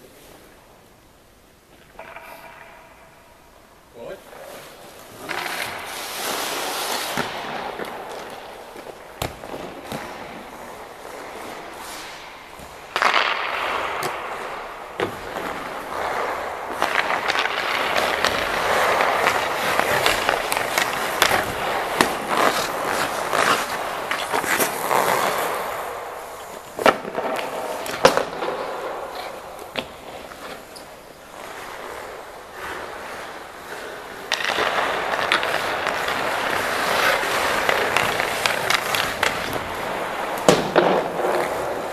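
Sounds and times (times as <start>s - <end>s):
pucks clacking on gear: 1.7s - 3.4s, 34.2s - 41.9s
ice skate blades scraping: 4.0s - 41.9s.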